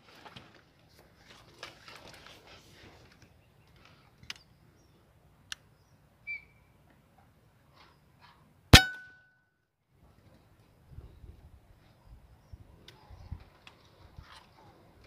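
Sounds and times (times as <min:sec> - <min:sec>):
air rifle shot: 0:08.8 - 0:09.1.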